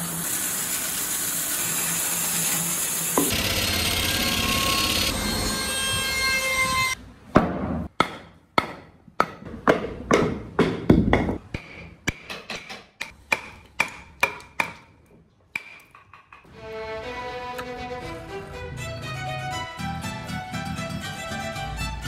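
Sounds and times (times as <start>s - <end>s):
hammer striking chisel into wood: 7.4s - 14.9s.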